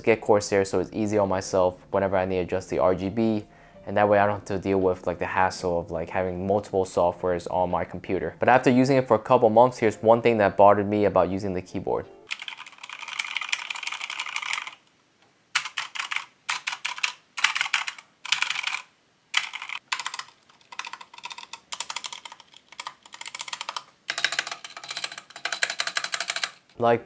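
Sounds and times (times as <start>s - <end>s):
mechanical keyboard typing: 12.3s - 14.8s, 15.6s - 26.7s.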